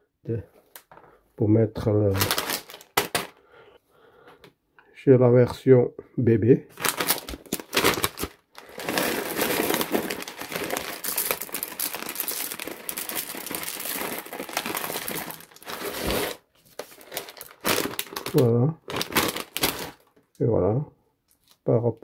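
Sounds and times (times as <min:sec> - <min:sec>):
plastic bag crinkling: 0:02.1 - 0:03.4, 0:06.7 - 0:20.3
pebbles clattering into pot: 0:06.9 - 0:18.4.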